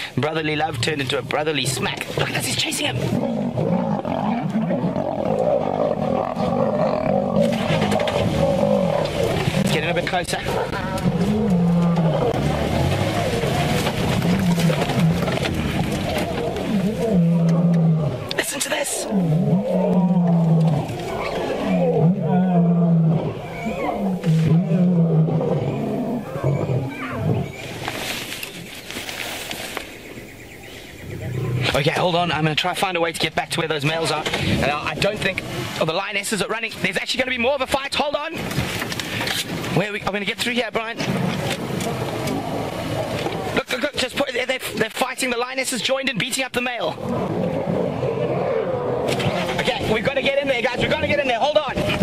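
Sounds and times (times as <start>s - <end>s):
lions growling and snarling: 0.5s - 28.0s, 31.0s - 32.2s, 41.0s - 43.7s, 46.8s - 51.0s.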